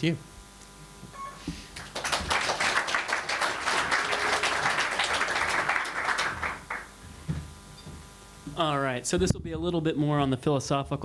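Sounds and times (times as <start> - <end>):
audience applauding: 1.7 - 6.9.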